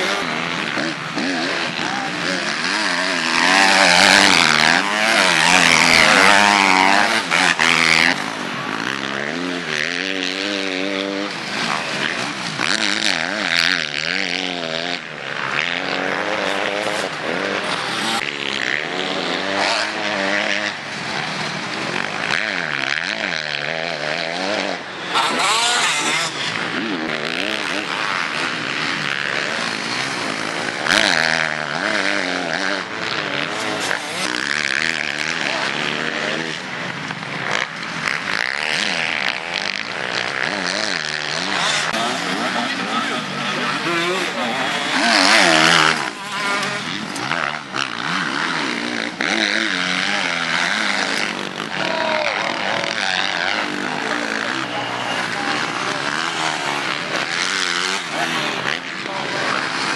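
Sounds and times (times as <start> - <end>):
motocross bike engines revving: 0.0 - 59.9.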